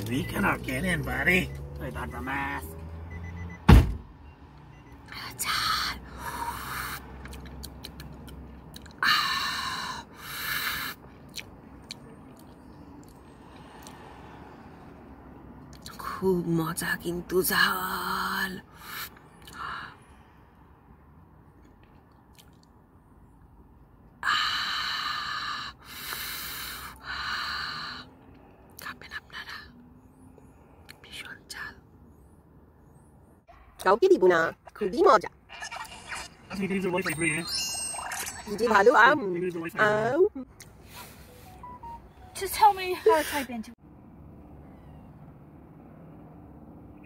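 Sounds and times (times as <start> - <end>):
mouth clicks: 7.0 - 9.0, 10.9 - 14.0.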